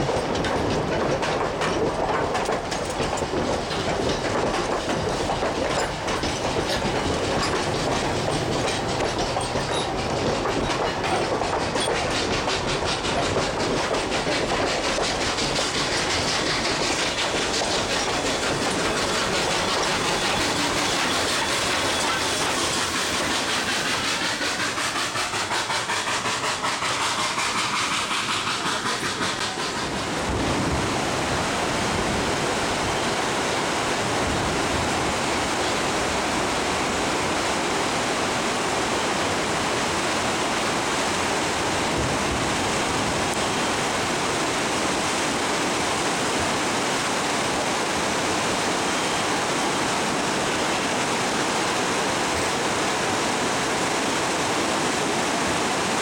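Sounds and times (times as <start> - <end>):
river water rushing: 29.6 - 56.0.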